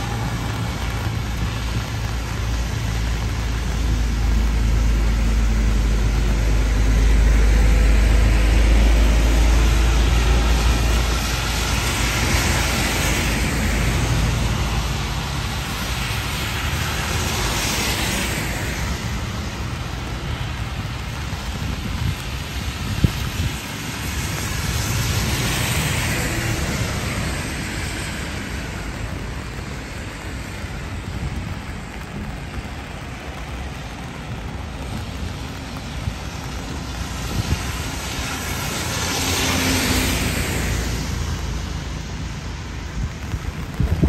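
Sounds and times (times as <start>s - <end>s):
steady rain: 0.0s - 44.0s
traffic hiss on wet road: 0.0s - 44.0s
vehicle passing close by: 36.2s - 42.2s.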